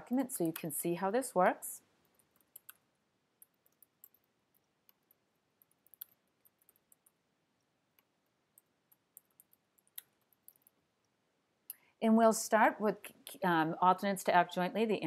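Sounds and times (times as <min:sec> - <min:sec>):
keyboard typing: 0:00.0 - 0:00.7, 0:02.0 - 0:07.2, 0:07.9 - 0:10.8.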